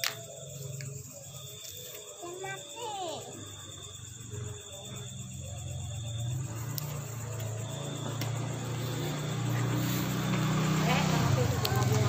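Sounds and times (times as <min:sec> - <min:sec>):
crickets chirping: 0:00.0 - 0:12.0
low engine hum: 0:05.0 - 0:12.0.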